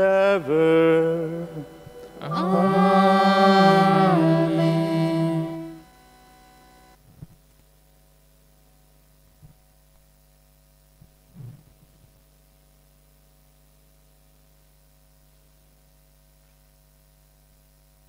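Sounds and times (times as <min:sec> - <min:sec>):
person singing: 0:00.0 - 0:05.8
faint steady hum: 0:00.0 - 0:18.0.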